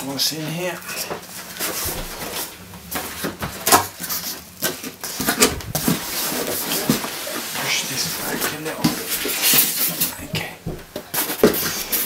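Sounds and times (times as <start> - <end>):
cardboard scraping and rustling: 4.1 - 7.6.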